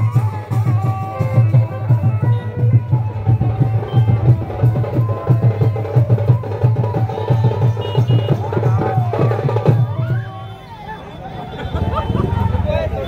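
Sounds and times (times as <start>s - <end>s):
folk drums playing fast beat: 0.0s - 10.6s, 11.5s - 13.0s
pitched instrument melody: 0.2s - 8.6s.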